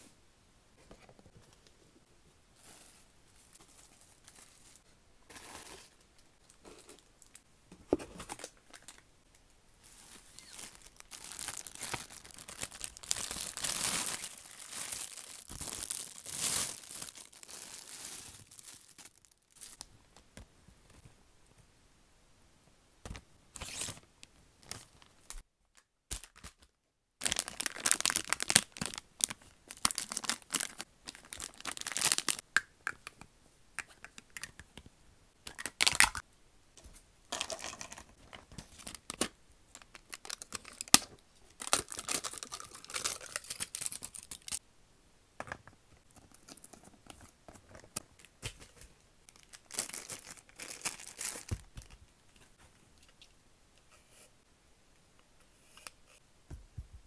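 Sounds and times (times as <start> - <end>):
plastic packaging crinkling: 9.8 - 19.8, 27.2 - 32.4, 35.5 - 36.2, 37.3 - 44.6, 46.1 - 52.0
plastic wrap tearing: 10.2 - 19.8, 27.2 - 32.4, 38.8 - 44.6, 49.3 - 51.9.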